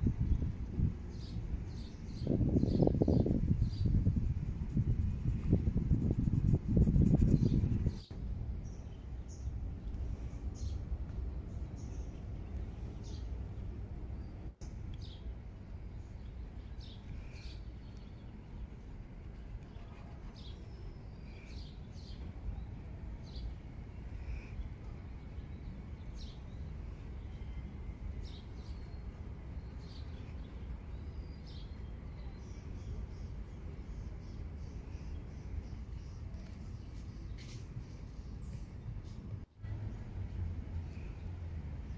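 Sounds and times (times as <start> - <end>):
low outdoor rumble: 0.0 - 41.9.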